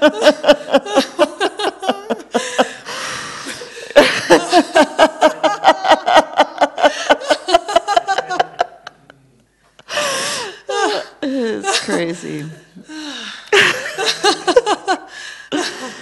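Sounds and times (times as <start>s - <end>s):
woman laughing heartily: 0.0s - 9.1s, 9.8s - 16.0s
breathy in-breath: 9.9s - 10.7s, 12.9s - 13.6s, 15.1s - 16.0s.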